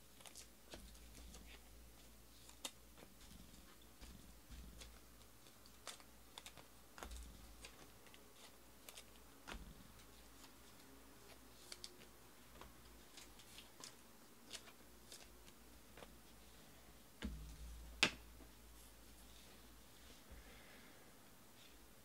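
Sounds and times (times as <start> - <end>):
cards clicking and tapping: 2.4 - 16.1.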